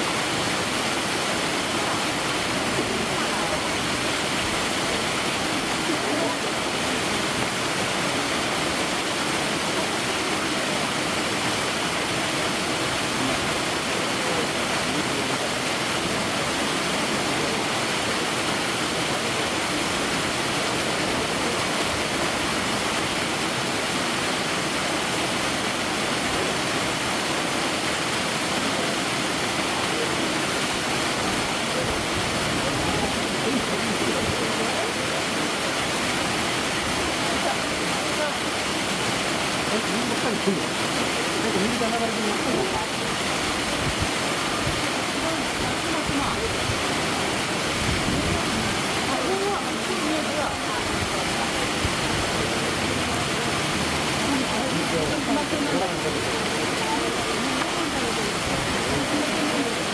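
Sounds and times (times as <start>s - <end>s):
running water rushing: 0.0s - 59.9s
faint murmur of voices: 1.3s - 8.9s, 25.6s - 59.9s.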